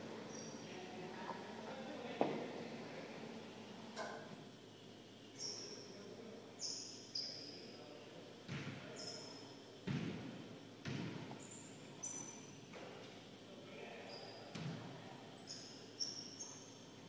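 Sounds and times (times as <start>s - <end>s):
basketball bouncing on hardwood: 8.5s - 8.7s, 9.8s - 11.3s
sneakers squeaking on court: 8.5s - 12.6s.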